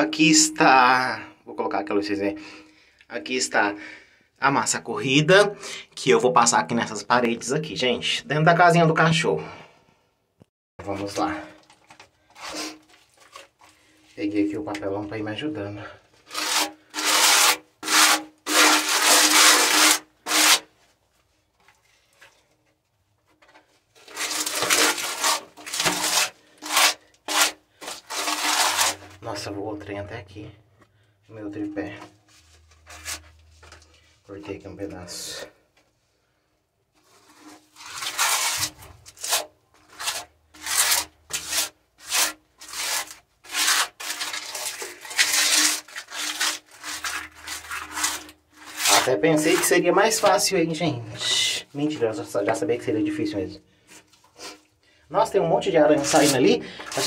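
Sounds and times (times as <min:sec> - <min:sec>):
putty scraping on plaster wall: 0:10.8 - 0:15.0, 0:15.6 - 0:20.8, 0:21.6 - 0:29.9, 0:31.6 - 0:35.5, 0:36.9 - 0:53.0, 0:53.9 - 0:57.0.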